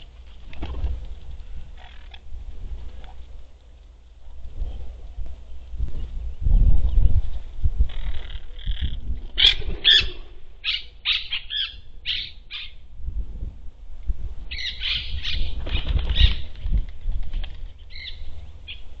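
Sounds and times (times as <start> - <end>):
wings flapping: 0.0 - 3.4, 9.1 - 10.3, 15.1 - 18.2
parakeets squawking: 1.8 - 2.2, 7.9 - 12.8, 14.5 - 16.5.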